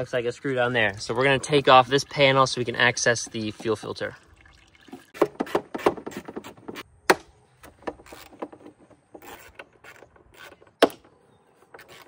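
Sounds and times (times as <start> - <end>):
hand tool clicking and scraping: 7.6 - 12.0.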